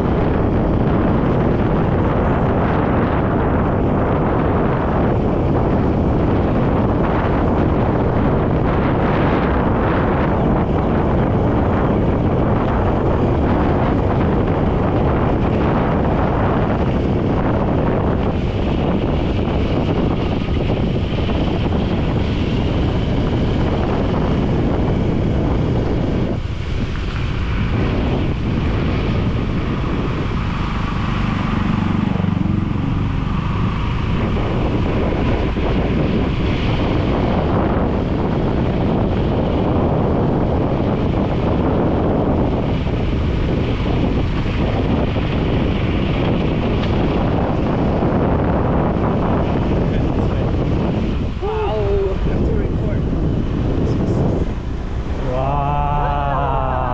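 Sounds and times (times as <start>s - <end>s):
strong wind buffeting microphone: 0.0s - 56.9s.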